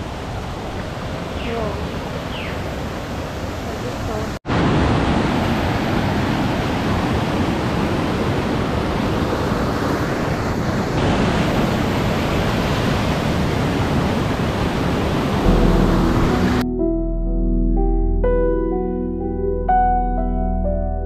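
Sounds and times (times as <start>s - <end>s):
water rushing over boulders: 2.9s - 16.6s.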